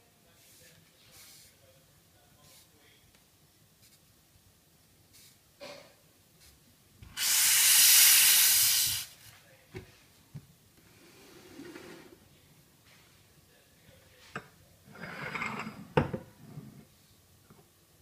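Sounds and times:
steam wand hissing: 7.2s - 9.2s.

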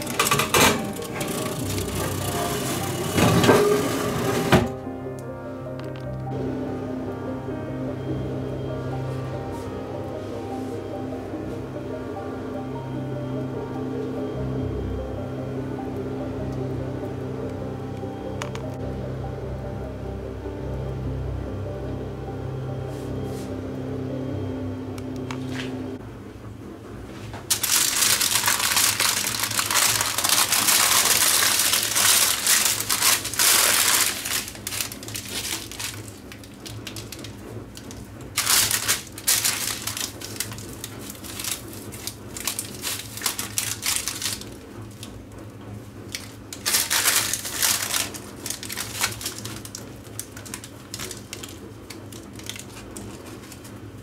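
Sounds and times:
baking paper crinkling: 27.5s - 45.1s, 46.1s - 54.0s
bread crust crackling and crunching: 27.5s - 45.1s, 46.1s - 53.8s.

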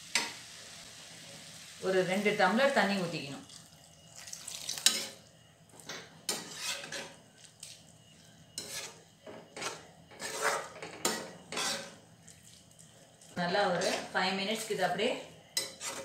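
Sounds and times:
spatula scraping vegetables in pan: 4.8s - 5.2s, 6.2s - 7.8s, 8.5s - 12.5s, 13.4s - 15.0s, 15.6s - 16.0s.

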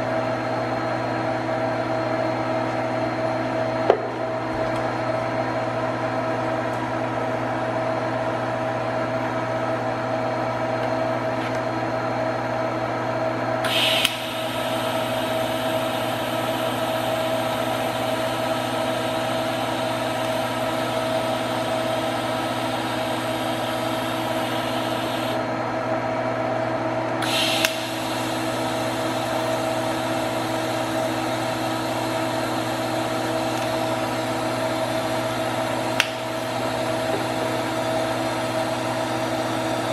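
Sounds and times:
machine hum: 0.0s - 39.9s
welding arc hissing: 13.6s - 25.4s, 27.2s - 39.9s
welding arc crackle: 13.7s - 25.4s.

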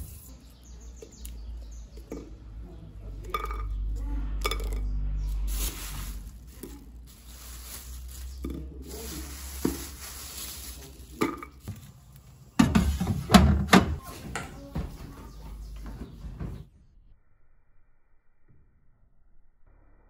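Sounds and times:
papery rustle: 5.3s - 12.4s.

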